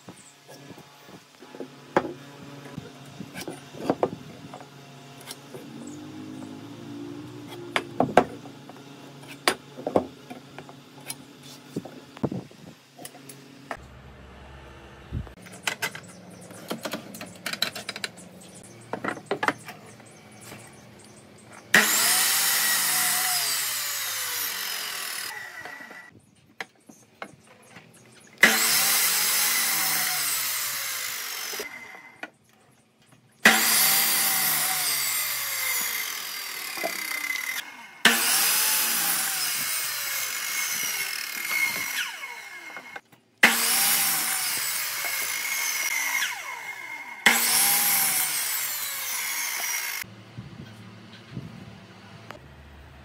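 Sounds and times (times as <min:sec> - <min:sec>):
electric mitre saw cutting wood: 0:00.4 - 0:12.2, 0:21.6 - 0:26.1, 0:28.4 - 0:32.3, 0:33.4 - 0:50.1.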